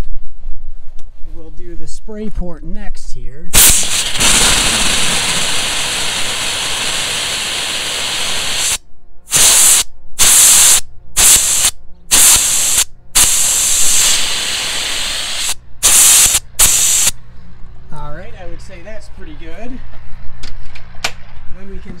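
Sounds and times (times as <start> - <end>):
compressed air spraying hiss: 3.6 - 17.2.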